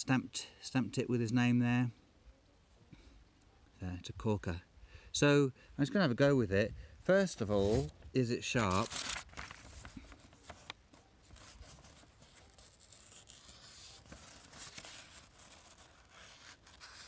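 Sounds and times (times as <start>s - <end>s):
blade slicing paper: 11.6s - 17.0s.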